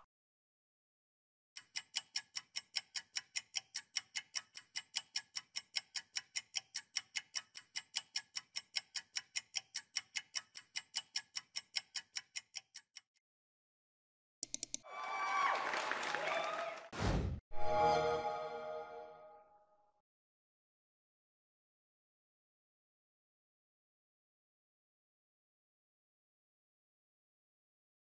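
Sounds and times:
clock ticking quickly: 1.6s - 13.1s.

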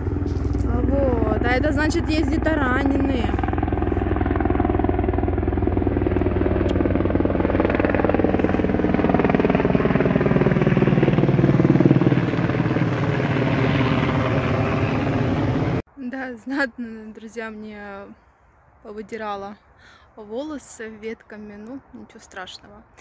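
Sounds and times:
helicopter rotor chop and whine: 0.0s - 15.8s.

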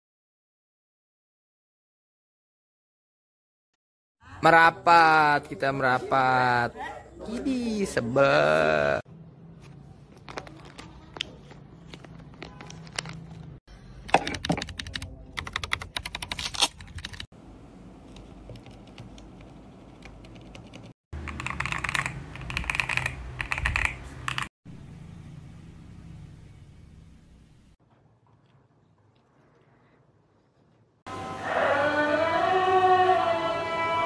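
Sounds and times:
mechanical keyboard clicking: 14.2s - 17.2s, 19.9s - 24.5s.

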